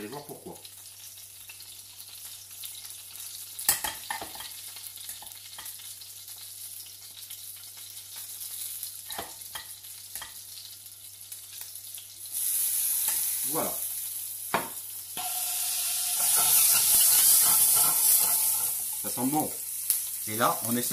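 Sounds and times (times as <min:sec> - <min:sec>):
tomatoes sizzling in a frying pan: 0:00.0 - 0:20.9
metal spoon knocking and scraping: 0:16.2 - 0:18.8.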